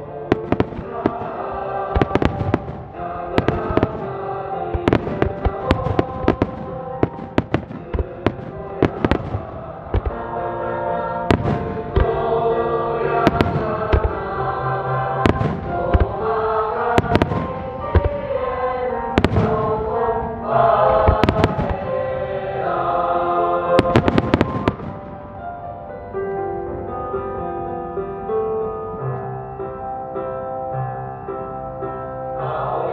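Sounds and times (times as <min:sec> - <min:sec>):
music with sung notes: 0:00.0 - 0:32.9
fireworks bursting with bangs: 0:00.3 - 0:10.3, 0:11.2 - 0:12.4, 0:13.1 - 0:14.4, 0:15.1 - 0:18.4, 0:19.0 - 0:20.2, 0:20.8 - 0:22.2, 0:23.8 - 0:25.6.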